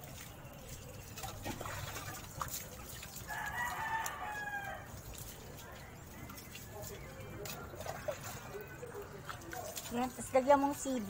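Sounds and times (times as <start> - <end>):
water splashing over dog: 0.0 - 11.0
rooster crowing: 3.3 - 4.9.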